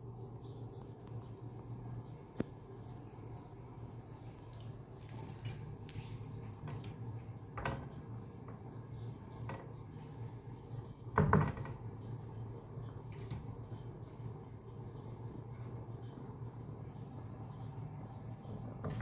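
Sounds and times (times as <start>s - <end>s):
steady low hum: 0.0s - 19.0s
sharp light clicks and clinks: 5.0s - 7.1s.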